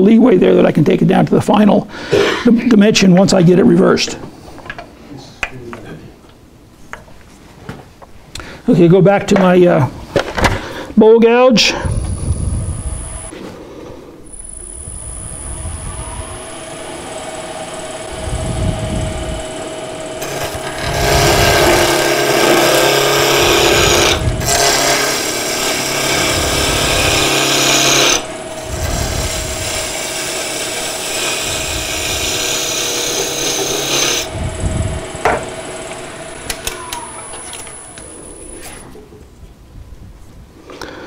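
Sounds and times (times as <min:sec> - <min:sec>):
wood lathe humming: 0:11.9 - 0:13.3, 0:14.3 - 0:38.8
gouge scraping spinning wood: 0:14.4 - 0:38.6.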